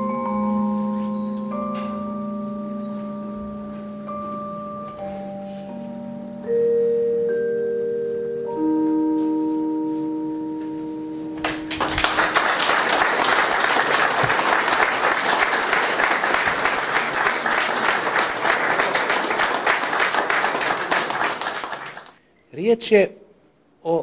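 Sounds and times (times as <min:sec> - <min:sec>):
crowd applauding: 0:11.4 - 0:22.2.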